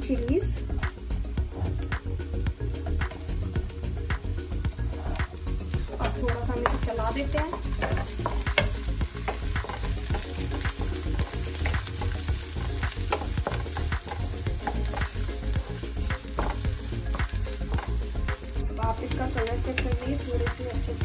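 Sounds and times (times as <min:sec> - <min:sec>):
onions sizzling in hot oil: 0:00.0 - 0:21.0
spatula scraping and knocking pan: 0:04.5 - 0:21.0.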